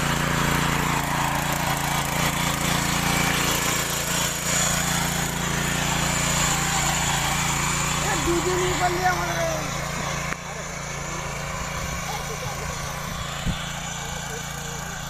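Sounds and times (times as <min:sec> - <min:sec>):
small tiller engine running: 0:00.0 - 0:15.0
tines churning dry soil: 0:00.0 - 0:15.0.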